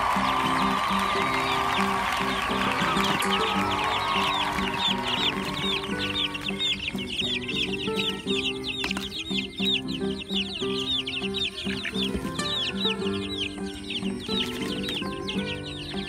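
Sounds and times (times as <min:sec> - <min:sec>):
background music with held notes: 0:00.0 - 0:16.0
chicks peeping: 0:00.0 - 0:16.0.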